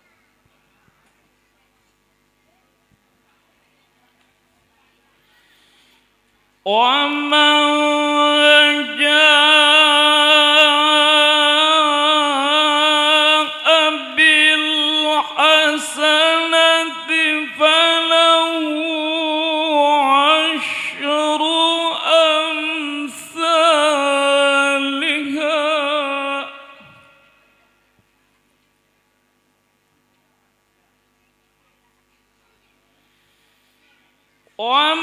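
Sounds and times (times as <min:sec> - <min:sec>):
man reciting melodically into microphone: 0:06.7 - 0:27.3, 0:34.6 - 0:35.0.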